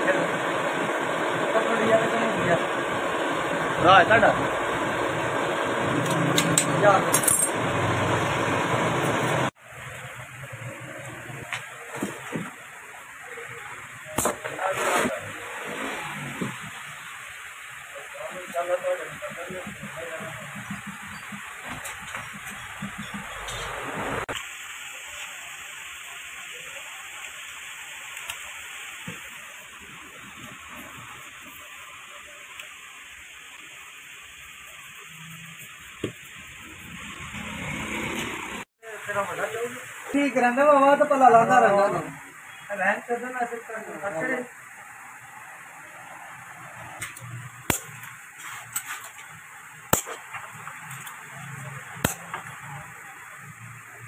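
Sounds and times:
steady background hiss: 0:09.6 - 0:22.5
metal tool striking battery: 0:47.7 - 0:48.1, 0:49.9 - 0:50.4, 0:52.0 - 0:52.4.

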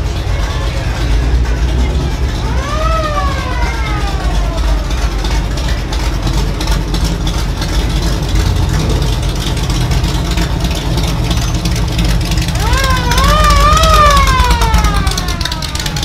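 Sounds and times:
falling pitched tone: 0:00.0 - 0:06.0, 0:12.6 - 0:16.0
car engines idling: 0:00.0 - 0:16.0.

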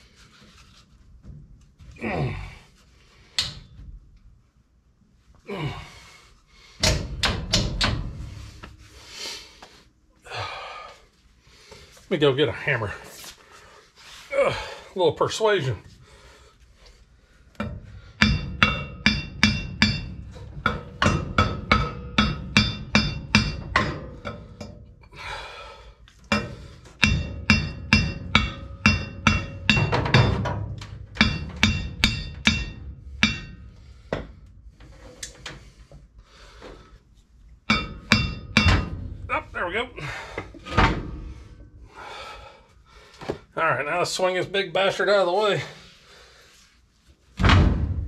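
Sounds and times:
hammer striking metal drum: 0:17.6 - 0:24.8, 0:26.3 - 0:34.3, 0:37.7 - 0:39.5.

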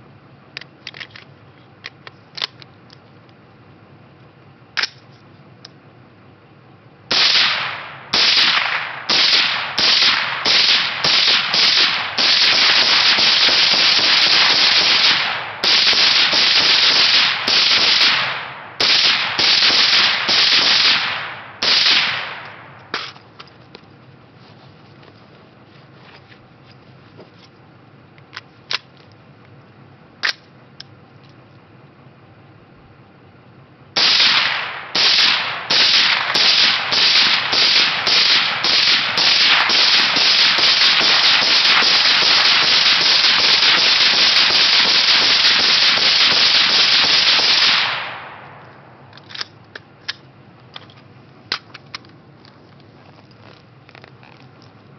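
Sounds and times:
suppressed rifle rapid shots: 0:07.1 - 0:23.2, 0:34.0 - 0:49.5.

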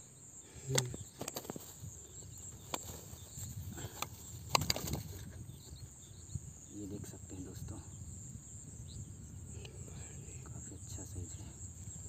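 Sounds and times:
sharp clicks and knocks: 0:03.9 - 0:05.3
faint high hiss: 0:06.0 - 0:12.0.

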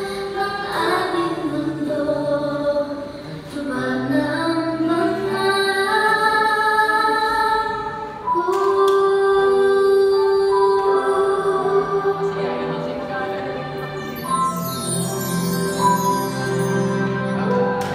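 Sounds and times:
woman singing: 0:00.0 - 0:14.4
musical accompaniment: 0:00.0 - 0:17.9.

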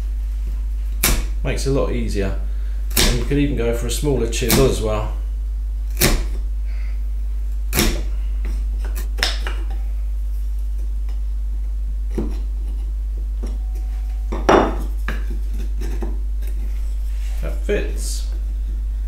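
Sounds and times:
steady low hum: 0:00.0 - 0:19.0
chisel and wood knocking on workbench: 0:14.3 - 0:15.4.

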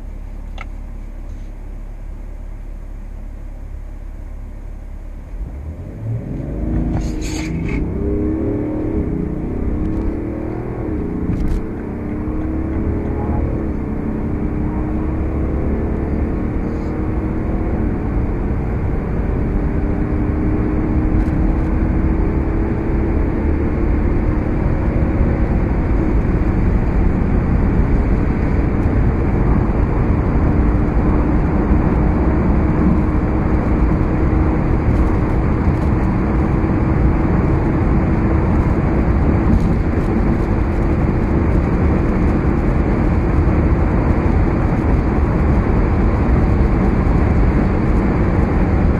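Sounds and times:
diesel engine accelerating: 0:00.0 - 0:48.9
wind and tyre roar: 0:05.2 - 0:48.9
gear upshifts: 0:05.6 - 0:15.5.

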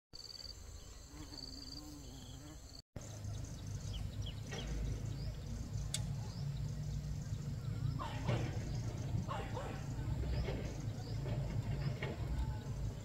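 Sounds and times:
low rumble: 0:03.3 - 0:13.0.

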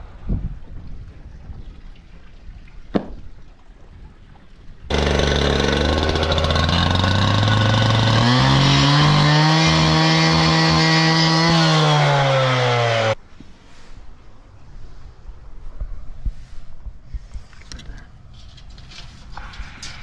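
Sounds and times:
power saw cutting steel: 0:04.9 - 0:13.2.

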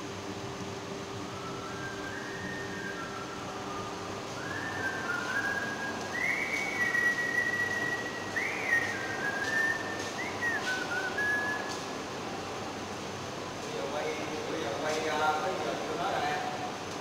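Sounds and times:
steady background hum: 0:00.0 - 0:17.0
person whistling a slow tune: 0:01.2 - 0:11.8.

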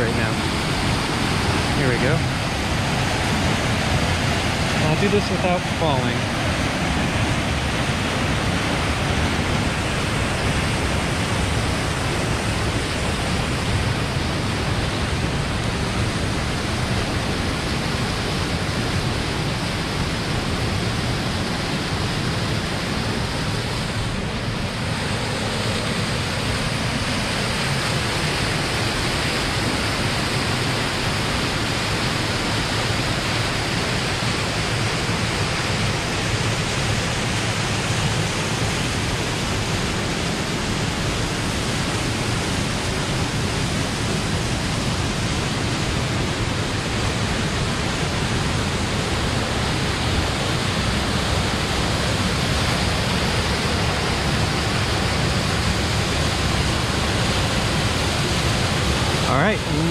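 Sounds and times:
creek rushing through gorge: 0:00.0 - 0:59.9.

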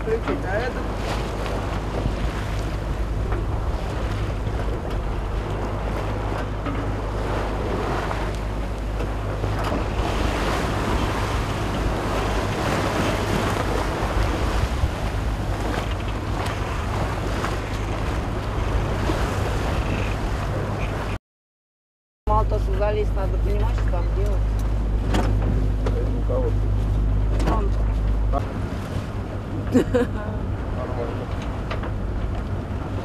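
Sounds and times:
waves splashing: 0:00.0 - 0:21.2, 0:22.3 - 0:33.0
wind buffeting microphone: 0:00.0 - 0:21.2.

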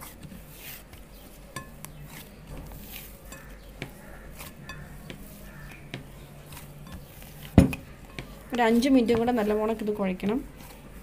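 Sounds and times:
soft dough handling noise: 0:00.0 - 0:11.0
dough knocking against bowl: 0:01.5 - 0:09.4.

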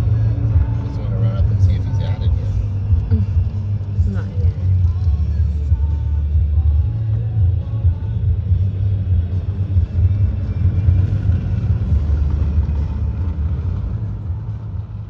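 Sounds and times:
car road and engine rumble: 0:00.0 - 0:15.0.

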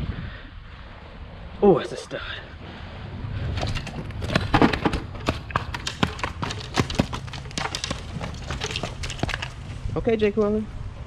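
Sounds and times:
fish tapping and knocking on concrete: 0:03.6 - 0:09.8.

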